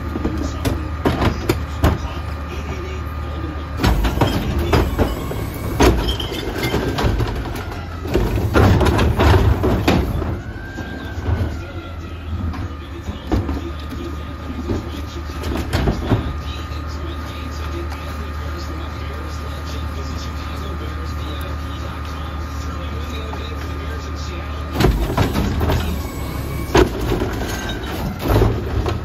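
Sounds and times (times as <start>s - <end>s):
diesel truck engine idling: 0.0s - 29.0s
steady whine: 0.0s - 29.0s
cart banging and clattering: 3.8s - 16.6s, 24.8s - 29.0s.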